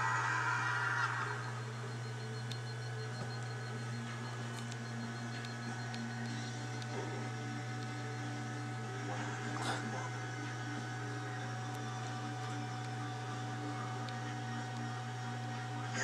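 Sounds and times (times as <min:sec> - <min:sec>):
low electrical hum: 0:00.0 - 0:16.0.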